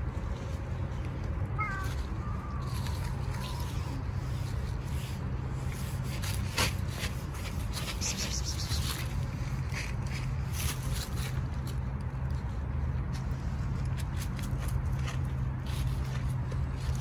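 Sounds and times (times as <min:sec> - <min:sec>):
cat meowing: 0:01.6 - 0:04.0.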